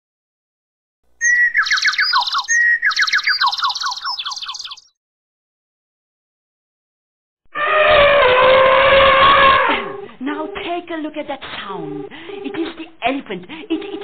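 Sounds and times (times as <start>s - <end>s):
bird singing: 1.2s - 5.0s.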